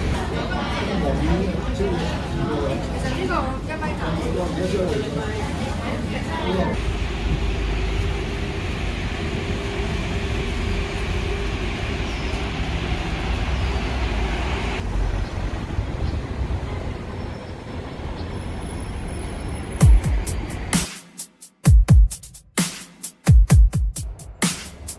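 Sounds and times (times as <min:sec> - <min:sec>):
tram rumbling on rails: 0:00.0 - 0:20.8
tram whine: 0:06.8 - 0:20.8.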